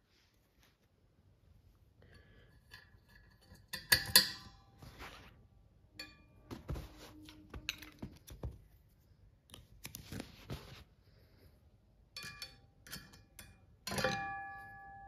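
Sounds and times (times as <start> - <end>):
ringing metallic clink: 12.2 - 15.0.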